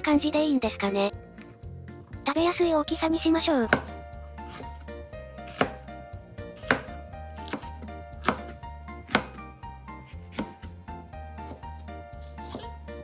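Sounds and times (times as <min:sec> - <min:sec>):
soft background music: 0:00.0 - 0:13.0
knife knocking on cutting board: 0:06.7 - 0:09.4.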